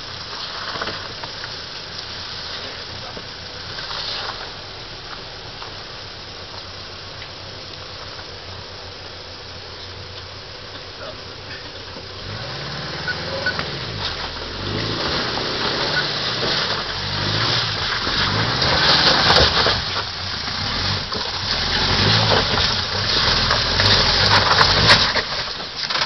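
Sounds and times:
car engine revving under load: 0.0 - 26.0
tyre and drivetrain noise: 0.0 - 26.0.

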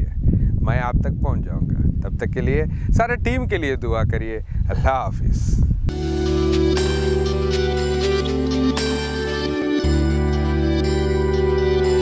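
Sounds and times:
music of held chords: 5.9 - 12.0.

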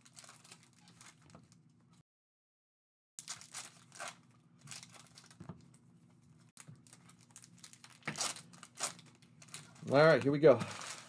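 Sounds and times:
foil wrapper tearing and crinkling: 0.0 - 1.6, 3.2 - 5.4, 6.6 - 11.0.

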